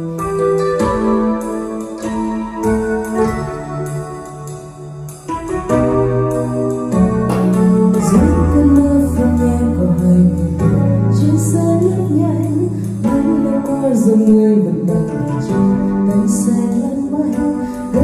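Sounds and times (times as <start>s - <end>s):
instrumental backing track: 0.0s - 18.0s
woman singing karaoke: 7.5s - 18.0s.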